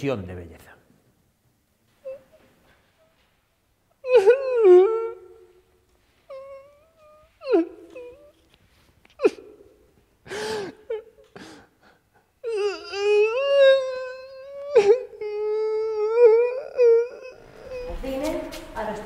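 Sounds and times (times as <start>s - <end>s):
man sobbing and sniffing: 9.0s - 17.7s.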